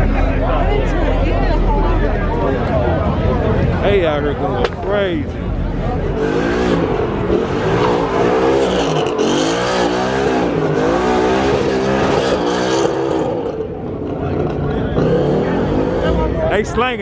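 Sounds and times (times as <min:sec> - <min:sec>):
car engine revving: 0:03.7 - 0:16.7.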